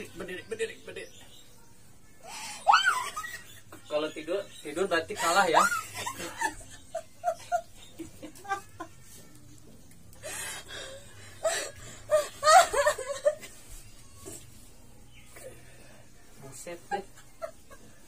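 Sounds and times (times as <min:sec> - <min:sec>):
woman laughing and giggling: 0:02.3 - 0:04.1, 0:05.1 - 0:09.3, 0:10.2 - 0:13.8, 0:16.8 - 0:18.0.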